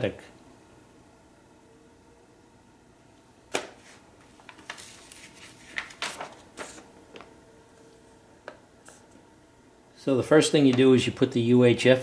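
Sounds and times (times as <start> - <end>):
paper rustling: 3.8 - 7.3.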